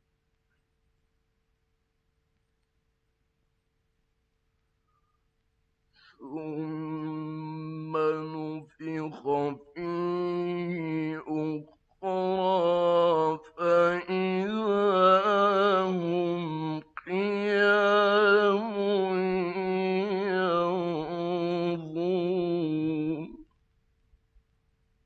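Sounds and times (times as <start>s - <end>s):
man chanting: 6.2s - 23.5s.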